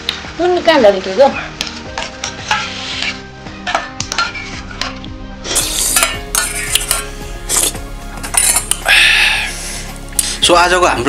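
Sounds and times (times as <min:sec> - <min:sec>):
metal spoon scraping steel bowl: 0:02.0 - 0:08.8.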